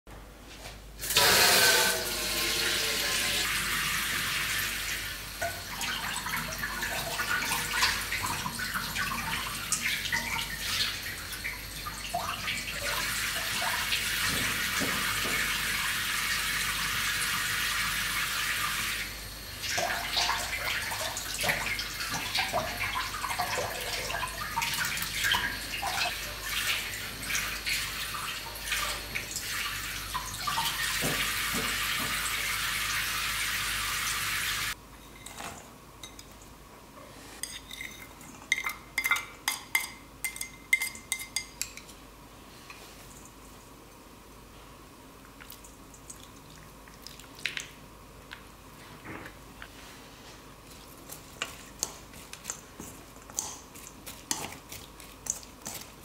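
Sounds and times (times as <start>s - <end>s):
tap water running into sink: 1.0s - 19.0s, 19.6s - 34.8s.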